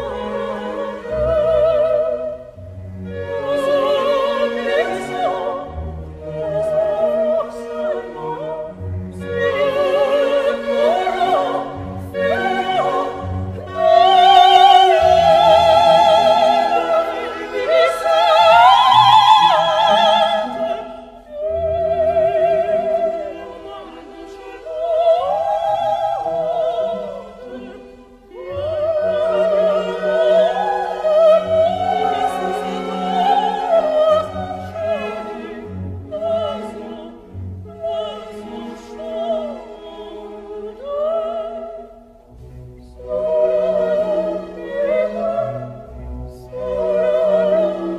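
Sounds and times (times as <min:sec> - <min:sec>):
operatic soprano singing: 0:00.0 - 0:47.9
orchestral accompaniment: 0:00.0 - 0:47.9.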